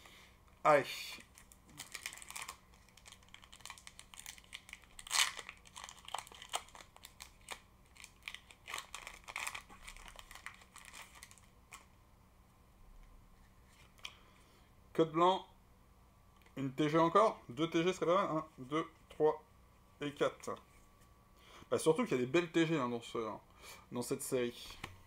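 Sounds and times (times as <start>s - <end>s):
cards rustling: 1.2s - 11.9s
foil wrapper crinkling and tearing: 1.2s - 11.9s.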